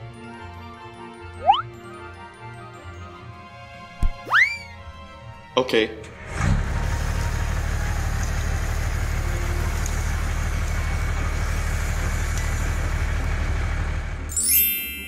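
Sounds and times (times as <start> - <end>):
tractor engine idling: 6.2 - 14.3.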